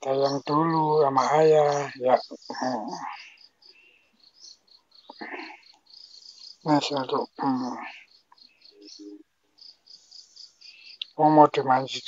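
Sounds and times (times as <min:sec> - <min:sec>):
man speaking: 0:00.0 - 0:03.1
crickets chirping: 0:00.0 - 0:12.0.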